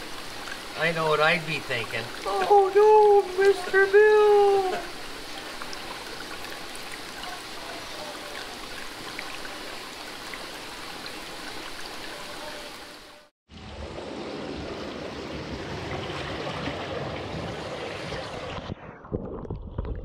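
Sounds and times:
water dripping and splashing: 0.0s - 13.3s
water running steadily: 0.0s - 18.5s.

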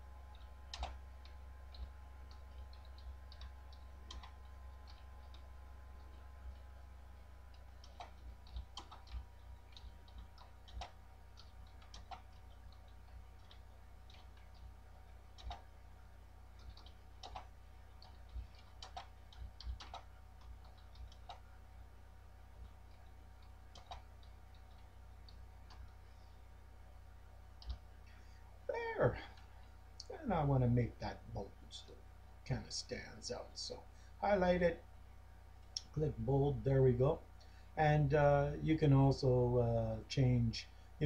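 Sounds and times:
low steady hum: 0.0s - 41.0s.

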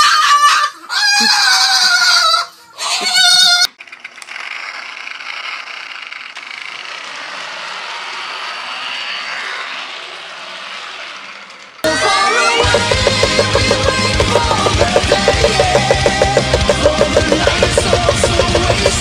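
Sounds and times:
cockatoo screeching: 0.0s - 3.7s.

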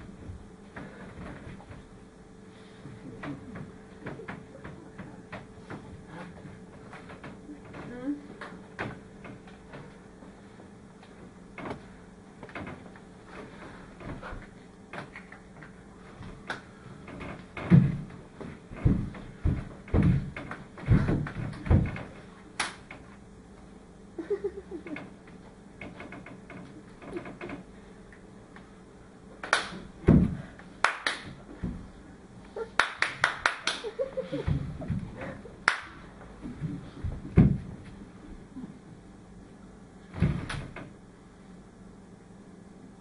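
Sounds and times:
hand claps and slaps: 22.6s - 22.9s, 29.4s - 29.9s, 30.8s - 31.6s, 32.8s - 34.0s, 35.6s - 36.0s.

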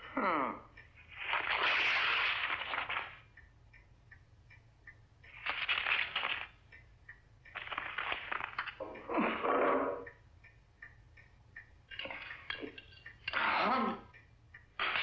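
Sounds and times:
faint clock ticking: 0.0s - 15.0s
scratchy rustling or crumpling: 1.1s - 3.2s, 5.3s - 6.6s, 7.6s - 8.8s.

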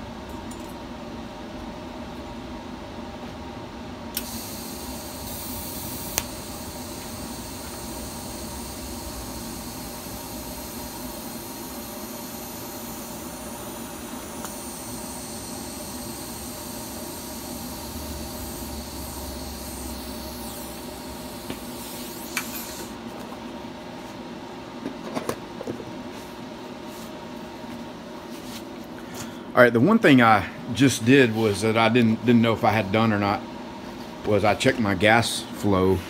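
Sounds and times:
steady hum: 0.0s - 36.0s
welding arc hissing: 4.2s - 23.0s.

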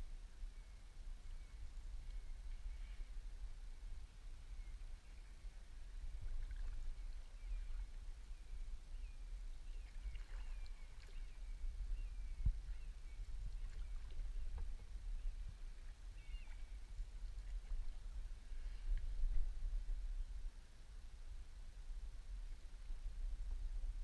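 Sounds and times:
low steady rumble: 0.0s - 24.0s
bird chirping: 16.2s - 16.8s.

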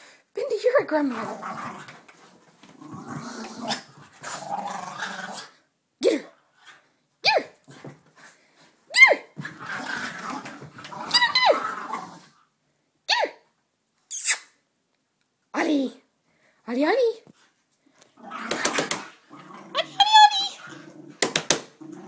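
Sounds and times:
dogs growling: 1.0s - 5.6s, 9.4s - 12.4s, 18.1s - 22.0s.

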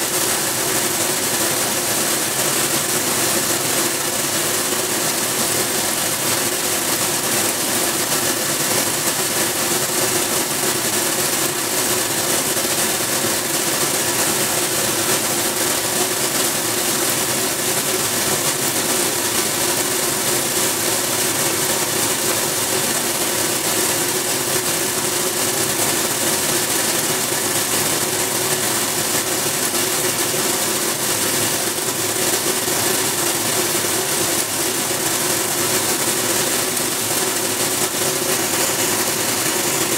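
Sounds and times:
granules streaming hiss and rattle: 11.8s - 39.9s
machine humming: 26.6s - 39.9s.

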